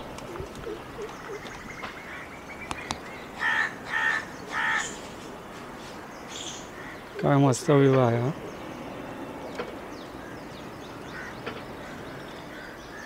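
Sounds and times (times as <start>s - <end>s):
crow cawing: 3.4s - 5.0s, 6.6s - 7.1s, 11.1s - 13.0s.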